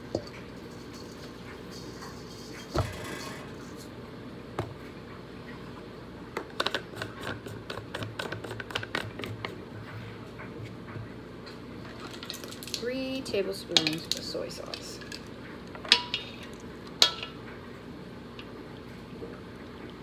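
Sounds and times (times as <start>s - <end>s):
seasoning shaker rattling: 0.0s - 3.4s, 11.9s - 17.4s.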